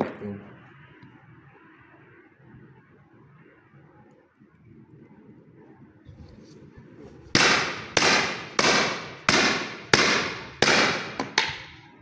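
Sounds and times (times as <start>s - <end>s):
hammer striking metal punch: 7.3s - 11.8s.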